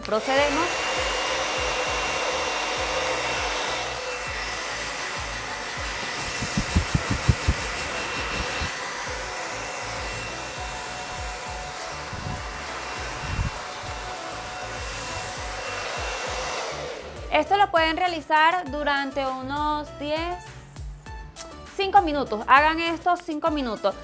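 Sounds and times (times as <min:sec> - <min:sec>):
hair dryer running: 0:00.0 - 0:17.6
low thumps: 0:05.8 - 0:08.7.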